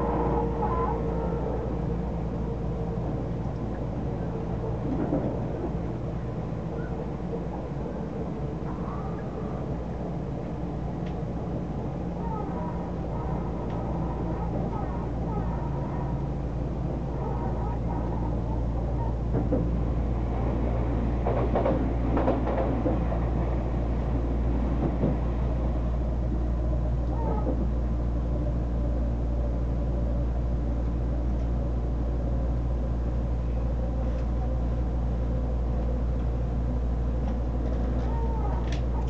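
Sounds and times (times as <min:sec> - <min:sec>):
constant hum: 0:00.0 - 0:39.0
train wheels rumbling on rails: 0:00.0 - 0:39.0
passing train rushing clatter: 0:19.2 - 0:25.9.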